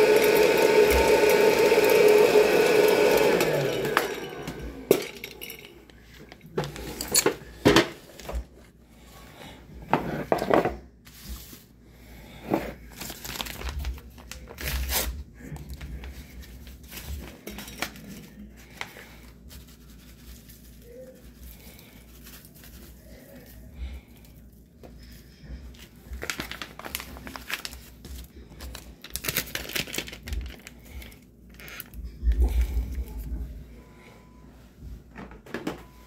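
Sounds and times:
paper packet crinkling and tearing: 12.8 - 23.6, 25.8 - 33.1.

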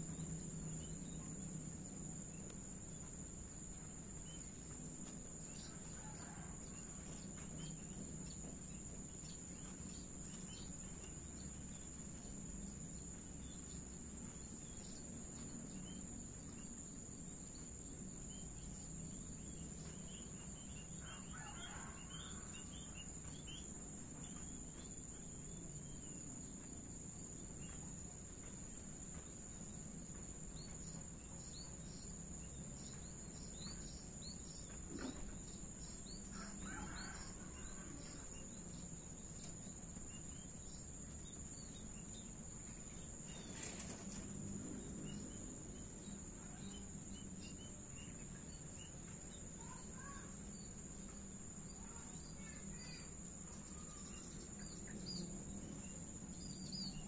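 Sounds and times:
crickets trilling: 0.0 - 57.0
small birds chirping: 0.0 - 57.0
rooster crowing: 21.0 - 22.6, 36.4 - 38.0.

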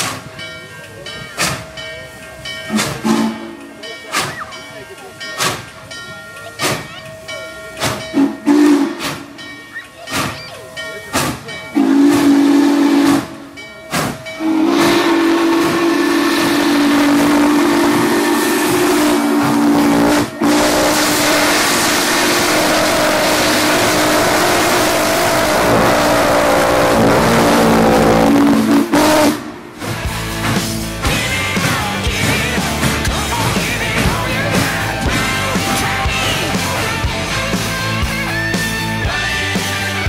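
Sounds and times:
steam hissing: 0.0 - 40.0
steam locomotive whistle: 2.7 - 4.4, 8.1 - 9.4, 11.7 - 29.6.

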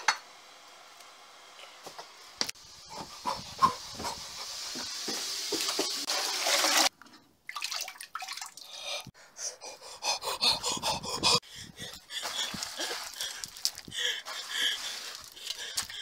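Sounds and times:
toilet flushing: 4.5 - 6.9.

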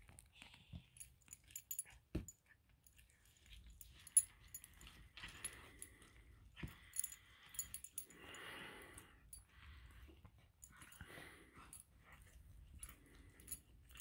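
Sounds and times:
collar fittings jingling: 3.4 - 9.5.

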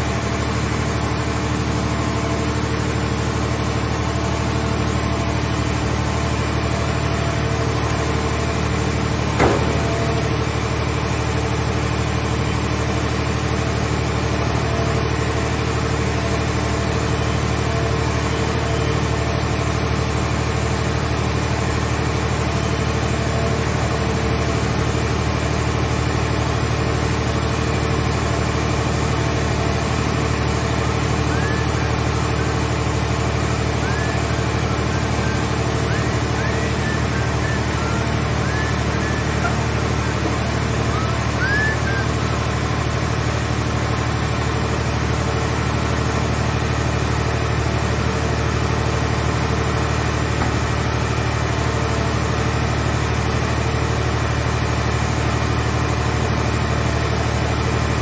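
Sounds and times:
hydraulic machinery engine drone: 0.0 - 58.0
sharp metal clank: 9.4 - 10.4.

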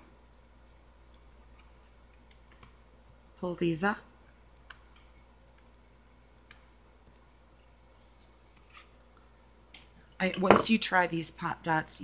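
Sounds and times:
soft paper rustle: 7.0 - 9.6.

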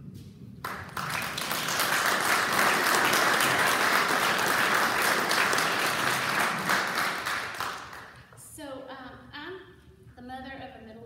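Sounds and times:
audience applauding: 0.6 - 8.3.

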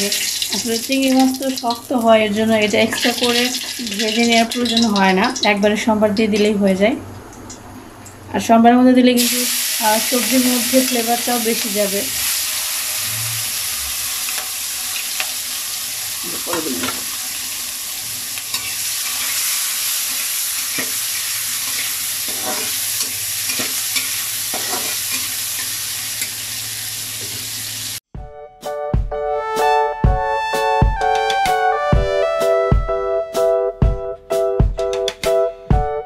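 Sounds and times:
prawns sizzling in hot oil: 0.0 - 5.6, 9.2 - 28.0
spatula scraping a wok: 18.0 - 26.4
electronic music with a beat: 28.4 - 36.0.

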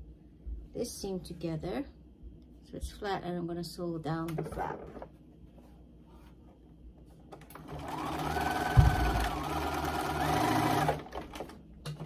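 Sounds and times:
sewing machine whining: 7.5 - 11.5.

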